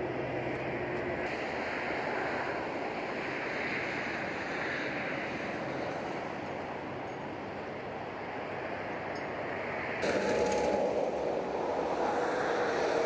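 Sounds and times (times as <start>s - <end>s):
motorway traffic rushing: 0.0s - 13.0s.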